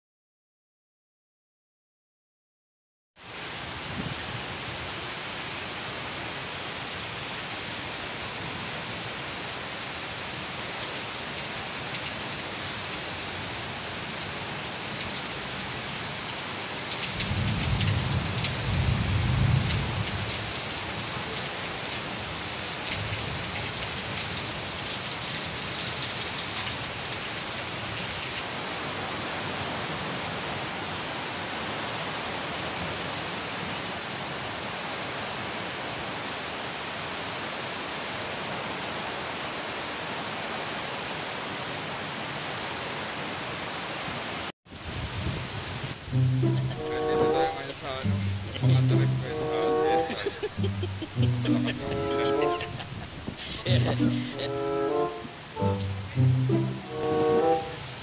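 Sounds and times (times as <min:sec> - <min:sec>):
heavy rain on pavement: 0:03.2 - 0:58.0.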